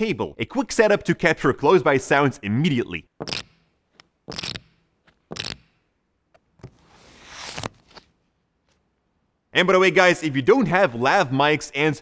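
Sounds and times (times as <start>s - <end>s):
playing cards swishing: 6.6s - 8.8s.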